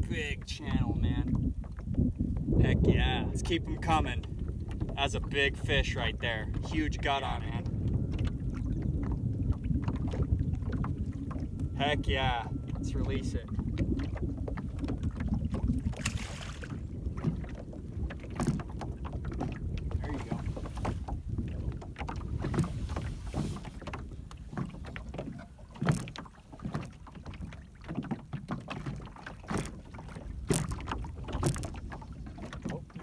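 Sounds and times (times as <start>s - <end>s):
wind buffeting microphone: 0.0s - 33.0s
knocks on boat: 13.6s - 33.0s
fish splashing into water: 15.4s - 16.9s.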